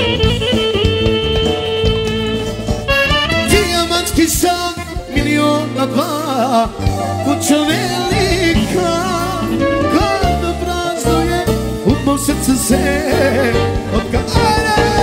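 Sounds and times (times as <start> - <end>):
accordion: 0.0 - 15.0
bass line and beat: 0.0 - 15.0
clarinet: 0.0 - 15.0
man singing into microphone: 3.5 - 15.0.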